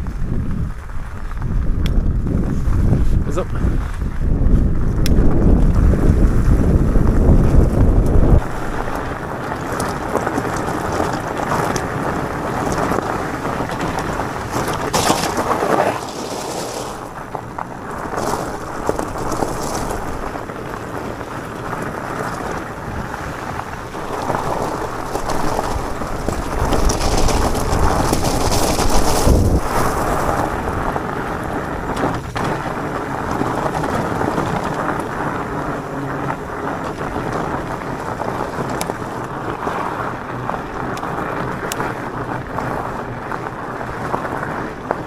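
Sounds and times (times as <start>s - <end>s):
bike tyres rolling on gravel: 0.0s - 45.0s
wind rumble on microphone: 0.0s - 45.0s.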